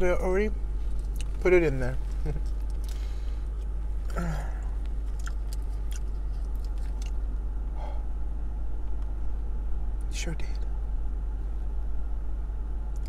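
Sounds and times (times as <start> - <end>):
low hum inside car: 0.0 - 13.0
soft eating clicks: 1.0 - 1.4, 4.6 - 7.2.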